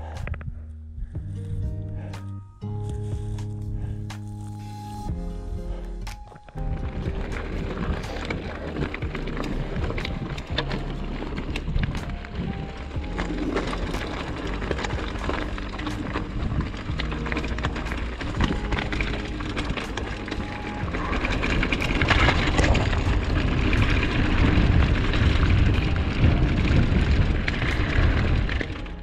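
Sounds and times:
wind buffeting a microphone: 20.8s - 29.0s.

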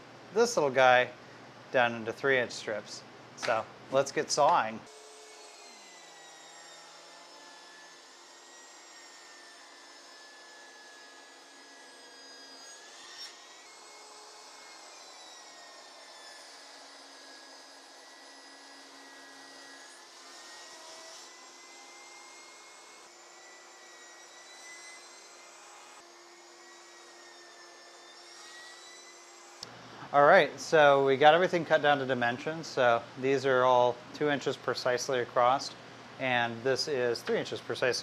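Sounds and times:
table saw whine: 2.2s - 38.0s.

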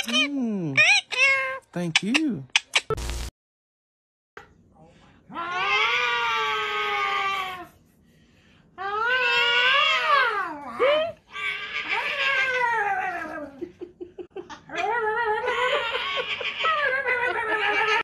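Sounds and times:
cat-like yowls: 5.3s - 7.7s, 8.8s - 13.6s.

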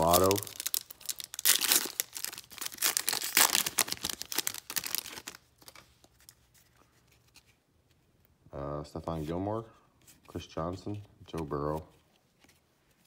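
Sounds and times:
foil wrapper crinkling: 0.0s - 5.8s.

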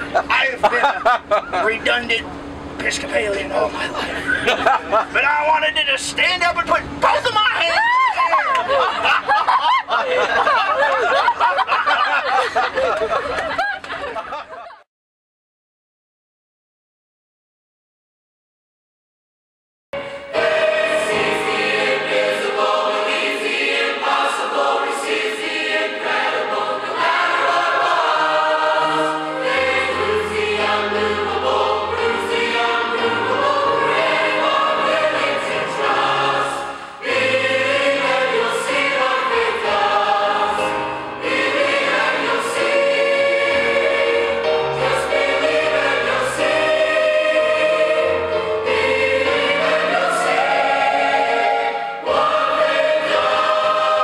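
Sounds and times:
mixed choir singing gospel: 20.0s - 54.0s.

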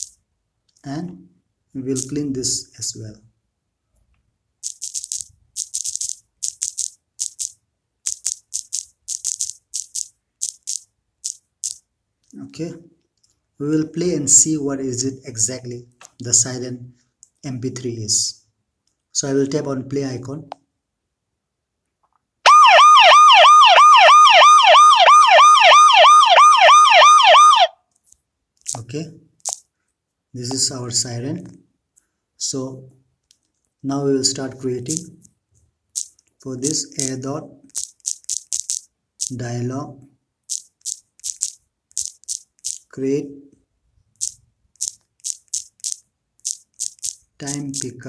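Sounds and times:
hissy rattle-like ticks: 4.6s - 11.8s, 29.4s - 29.6s, 36.0s - 36.2s, 37.0s - 39.4s, 40.5s - 42.9s, 44.2s - 47.9s
electronic siren yelp: 22.4s - 27.8s.

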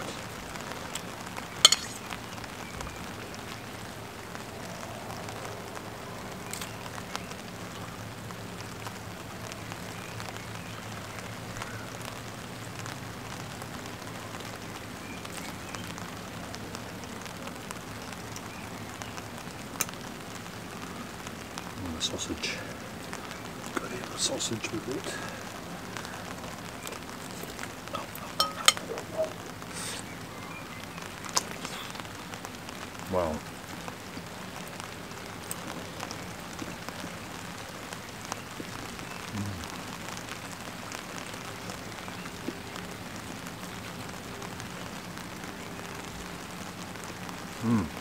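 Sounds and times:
rain pattering on a tarp: 0.0s - 48.0s
metal tongs clinking on a pot: 1.6s - 2.0s, 28.4s - 28.9s.

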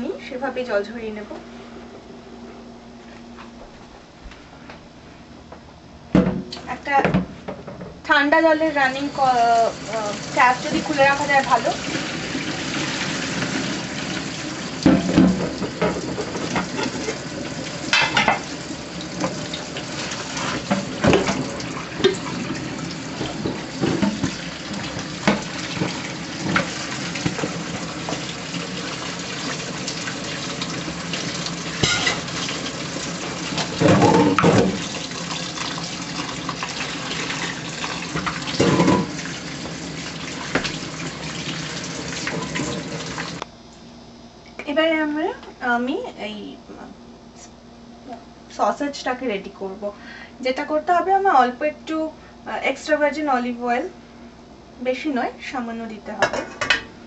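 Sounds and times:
tap water running into sink: 8.9s - 43.4s
pot and colander clattering on sink: 14.8s - 17.2s, 17.9s - 18.5s, 31.8s - 32.4s, 33.6s - 34.9s, 38.2s - 39.2s.

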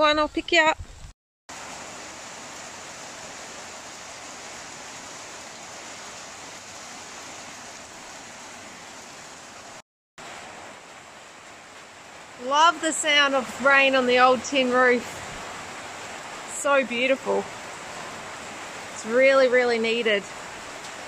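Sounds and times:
rain on a tin roof: 1.5s - 21.0s.

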